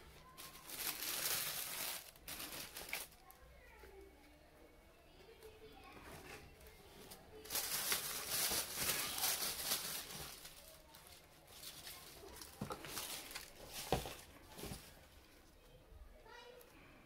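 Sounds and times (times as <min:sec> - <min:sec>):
tissue paper rustling: 0:00.0 - 0:03.3, 0:06.1 - 0:15.1.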